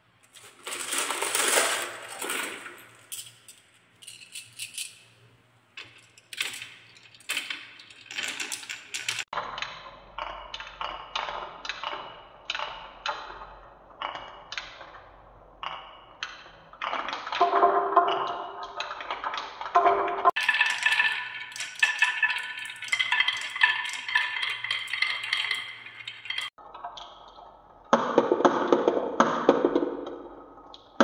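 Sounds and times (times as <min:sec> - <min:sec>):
marbles clattering down wooden run: 0:00.4 - 0:03.2, 0:05.8 - 0:09.3, 0:17.2 - 0:26.6.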